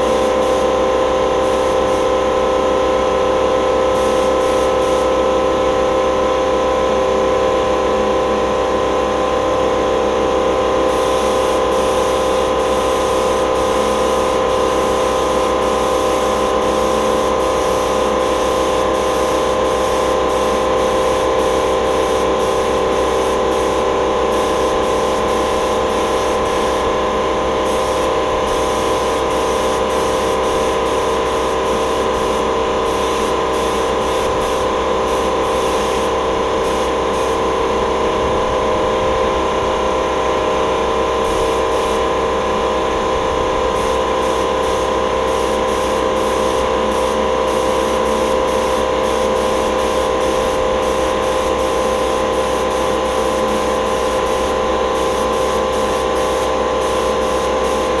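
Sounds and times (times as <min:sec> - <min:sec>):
spray gun hissing: 0:00.0 - 0:02.4, 0:03.9 - 0:05.2, 0:10.9 - 0:37.4, 0:41.3 - 0:42.2, 0:43.7 - 0:58.0
machine hum: 0:00.0 - 0:58.0.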